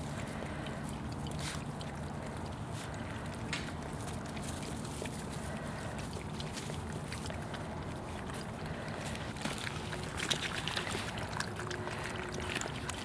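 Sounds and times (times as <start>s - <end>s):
puppies lapping water: 0.0s - 13.0s.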